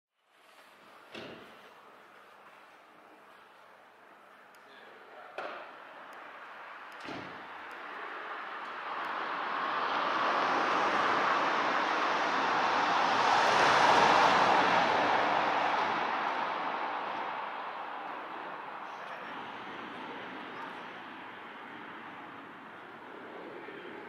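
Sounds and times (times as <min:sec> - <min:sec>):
long rushing noise: 0:05.9 - 0:24.0.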